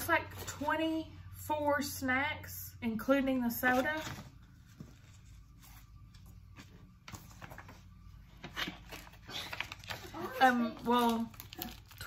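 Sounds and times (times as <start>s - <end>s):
low steady hum: 0.0s - 12.0s
plastic wrappers crinkling: 7.2s - 12.0s.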